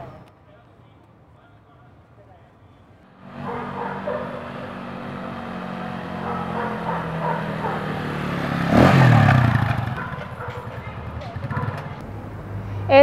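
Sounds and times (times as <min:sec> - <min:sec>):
small motorcycle passing: 0:03.2 - 0:13.0.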